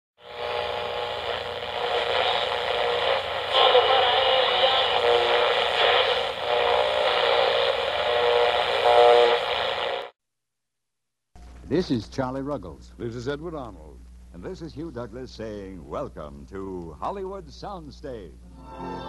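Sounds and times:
faint steady whines: 0:00.2 - 0:10.1
old radio static: 0:00.2 - 0:10.2.

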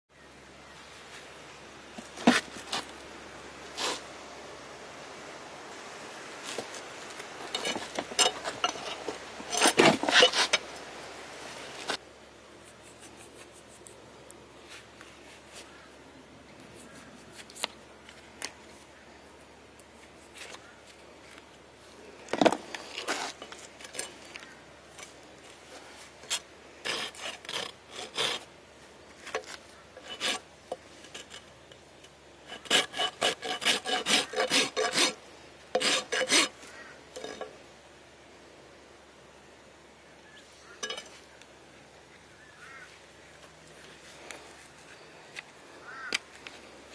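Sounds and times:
rasp filing a hoof: 0:26.2 - 0:28.5, 0:30.0 - 0:31.5, 0:32.4 - 0:37.5.

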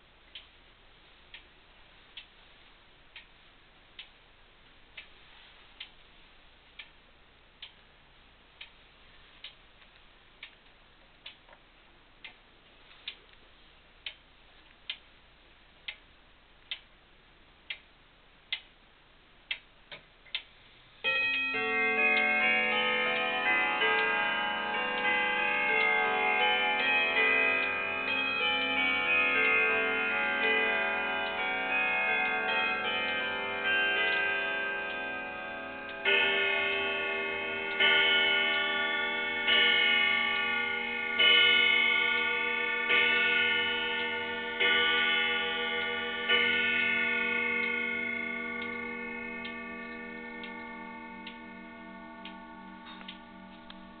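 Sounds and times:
clock ticking: 0:00.1 - 0:54.0
clock chime melody: 0:21.0 - 0:54.0
clock striking the hour: 0:21.0 - 0:54.0.

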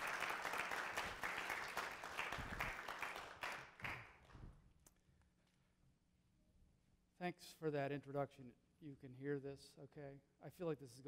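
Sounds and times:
audience applauding: 0:00.0 - 0:04.3.

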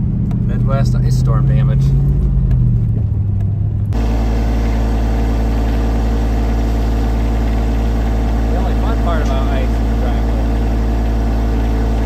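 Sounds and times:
truck engine and road rumble: 0:00.0 - 0:12.0
tractor diesel engine idling: 0:03.9 - 0:12.0.

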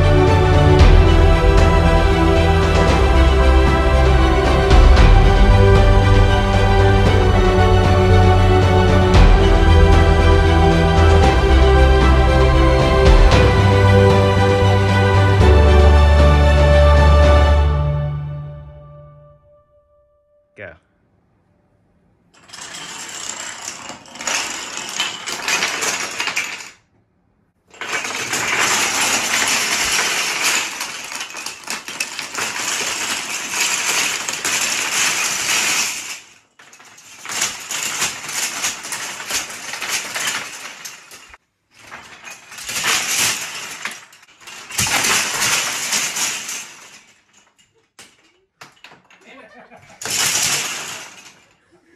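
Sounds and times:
wooden planks clattering and collapsing: 0:22.4 - 0:26.8, 0:27.6 - 0:51.8.

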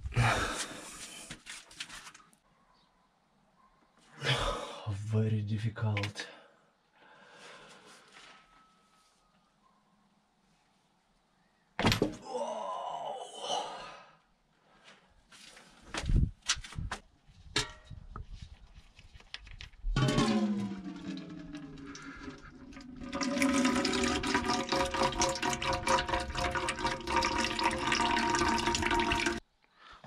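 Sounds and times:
oil pouring into container: 0:19.9 - 0:29.4.

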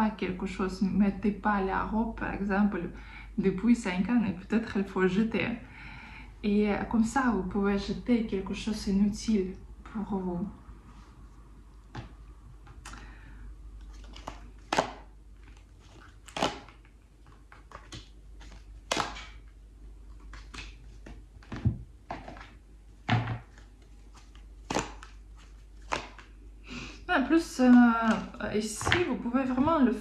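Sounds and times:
cards being shuffled: 0:13.8 - 0:22.6, 0:23.4 - 0:26.4.

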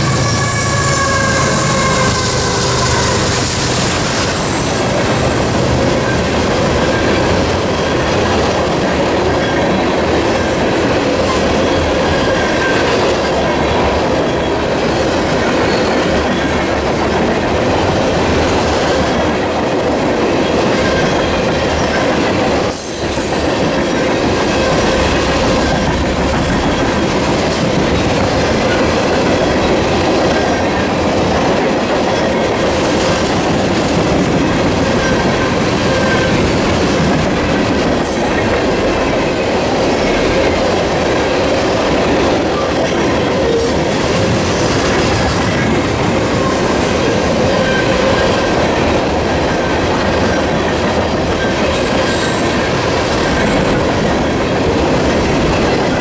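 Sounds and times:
high wheel squeal: 0:00.0 - 0:05.0
train wheels rumbling on rail: 0:00.0 - 0:56.0.

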